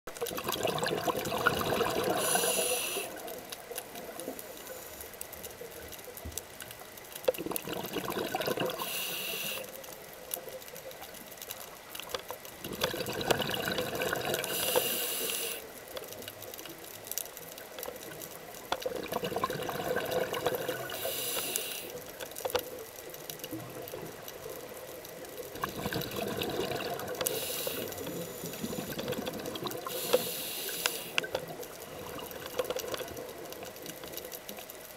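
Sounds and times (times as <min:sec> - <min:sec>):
scuba regulator breathing: 0:01.9 - 0:03.3, 0:08.8 - 0:09.8, 0:14.3 - 0:15.7, 0:20.8 - 0:22.0, 0:27.2 - 0:29.2, 0:29.8 - 0:31.3.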